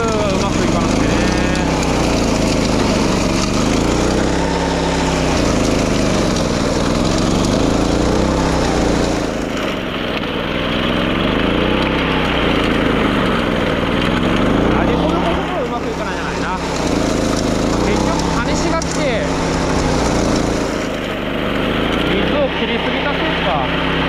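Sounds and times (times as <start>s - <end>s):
small gasoline engine running: 0.0s - 24.0s.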